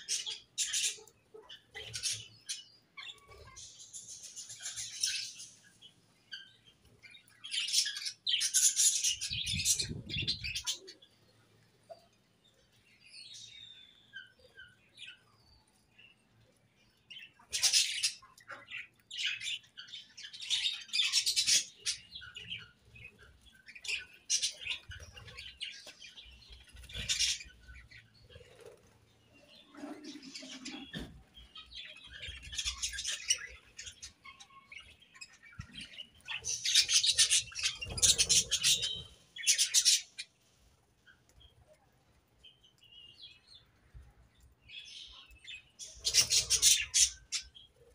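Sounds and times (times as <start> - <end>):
budgerigars chattering and chirping: 0.0 - 3.6, 20.3 - 23.1, 26.6 - 28.5, 35.3 - 40.3, 45.8 - 47.6.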